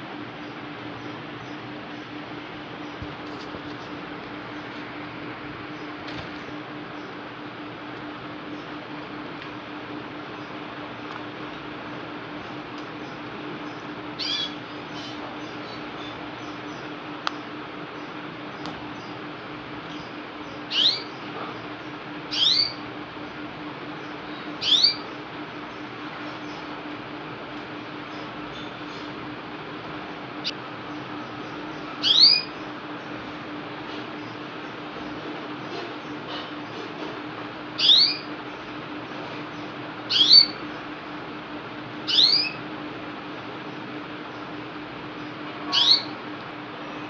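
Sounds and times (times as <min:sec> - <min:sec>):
steady low hum: 0:00.0 - 0:47.0
canary chirping: 0:13.6 - 0:16.9, 0:20.7 - 0:21.2, 0:22.3 - 0:22.8, 0:24.6 - 0:25.1, 0:31.4 - 0:32.6, 0:37.8 - 0:38.3, 0:40.1 - 0:40.6, 0:42.1 - 0:42.6, 0:45.7 - 0:46.2.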